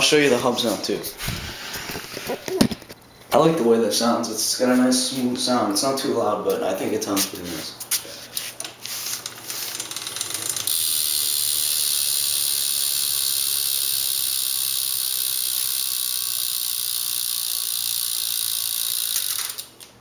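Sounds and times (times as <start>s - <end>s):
bicycle hub ratchet clicking: 9.2s - 19.9s.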